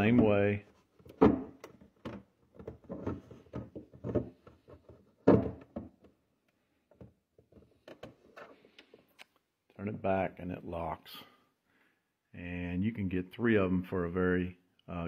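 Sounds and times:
plastic thunk: 0:01.0 - 0:06.1
knocks clicks and scraping: 0:01.0 - 0:06.2.

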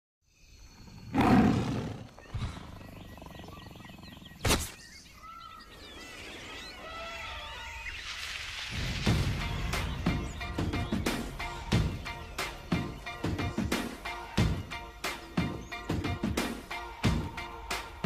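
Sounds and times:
warbling bird calls: 0:00.4 - 0:17.3
big cat roaring: 0:01.1 - 0:04.4.

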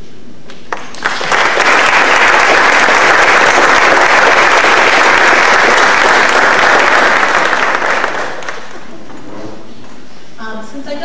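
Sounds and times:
audience applauding: 0:00.7 - 0:09.0.

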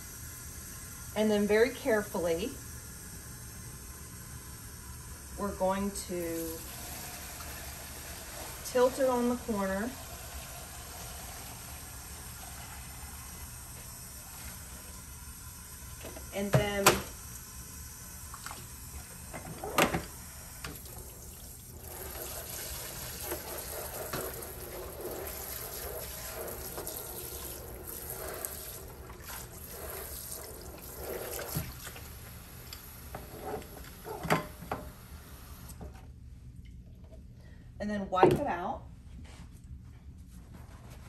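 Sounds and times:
running faucet: 0:00.0 - 0:35.4
water spraying into plastic tub: 0:20.0 - 0:32.4.

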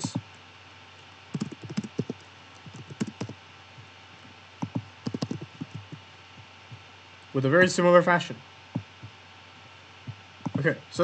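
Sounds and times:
typing on a computer keyboard: 0:01.3 - 0:03.4, 0:04.6 - 0:06.0.

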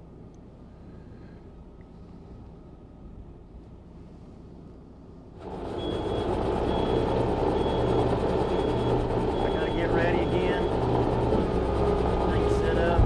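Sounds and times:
tractor and mixer wagon running: 0:05.4 - 0:13.0
high beep: 0:07.6 - 0:10.8.

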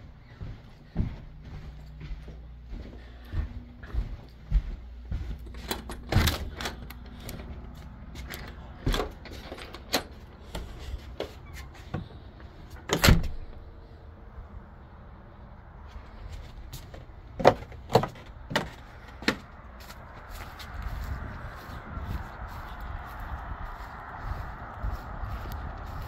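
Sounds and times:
footsteps on wooden deck: 0:00.0 - 0:13.7, 0:15.8 - 0:26.0
door clicks and knocks: 0:05.6 - 0:07.4, 0:12.8 - 0:13.4.

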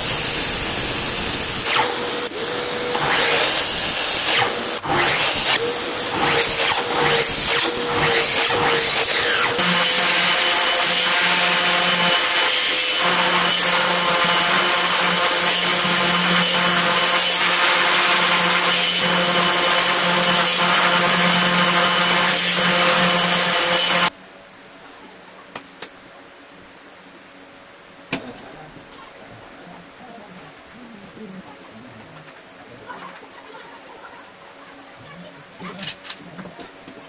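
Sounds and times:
orbit sander sanding wood: 0:00.0 - 0:24.1.

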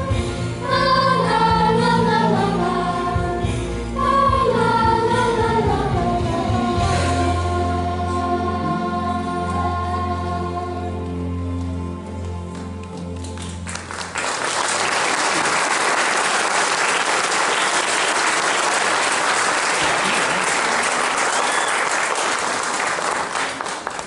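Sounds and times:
audience applause: 0:12.6 - 0:24.0.

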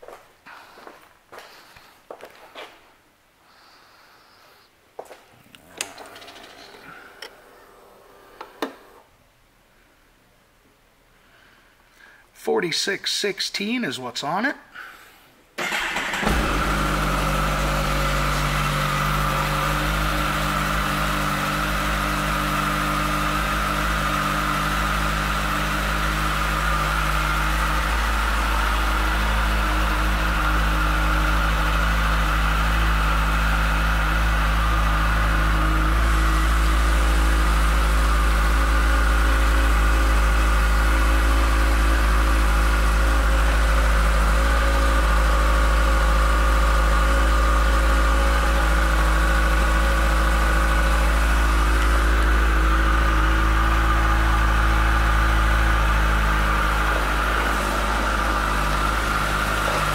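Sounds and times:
motorcycle engine idling: 0:15.6 - 0:59.9.

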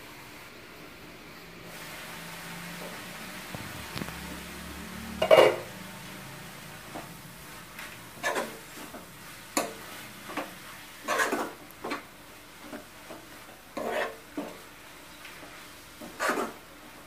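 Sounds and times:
steel spoon scraping a pan: 0:05.2 - 0:05.7, 0:08.2 - 0:12.0, 0:13.7 - 0:14.6, 0:16.0 - 0:16.6.

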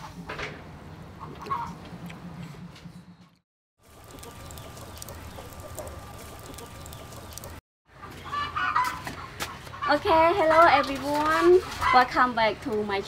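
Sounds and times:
outdoor ambience: 0:00.0 - 0:13.0
chickens clucking: 0:03.9 - 0:10.6
small clicks: 0:04.0 - 0:07.6.

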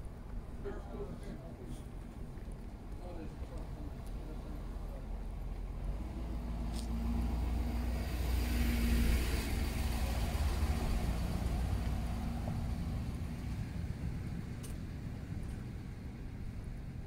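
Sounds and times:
pickup truck driving past: 0:05.6 - 0:17.0.

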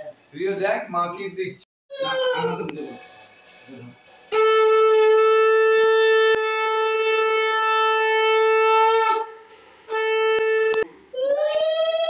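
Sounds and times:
conch shell blown: 0:04.2 - 0:10.8.

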